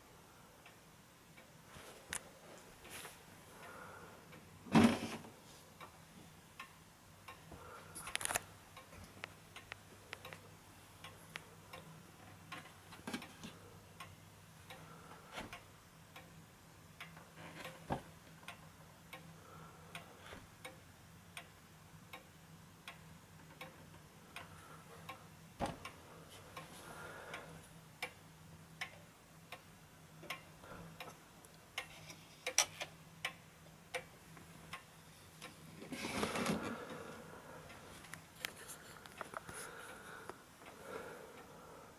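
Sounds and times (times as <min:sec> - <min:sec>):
pendulum clock ticking: 0:00.5 - 0:01.7, 0:05.7 - 0:35.8.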